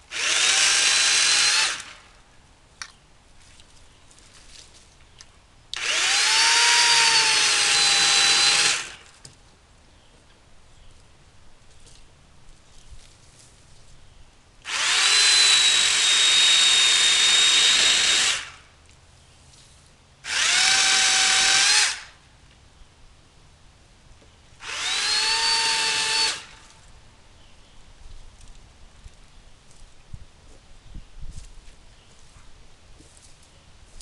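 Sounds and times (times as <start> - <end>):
electric chainsaw cutting limbs: 0.0 - 2.2, 5.8 - 9.2, 14.6 - 18.7, 20.2 - 22.2, 24.6 - 26.8.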